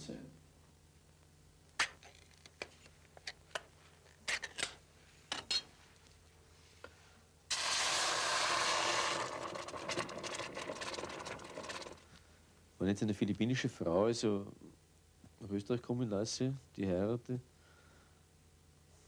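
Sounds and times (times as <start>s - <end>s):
food sizzling in a pot: 7.5s - 12.0s.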